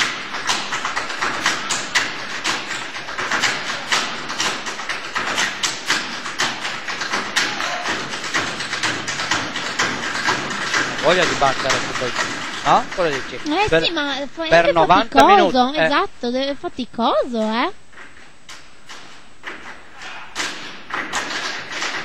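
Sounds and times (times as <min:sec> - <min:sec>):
boots tapping on stage floor: 0:00.0 - 0:13.9.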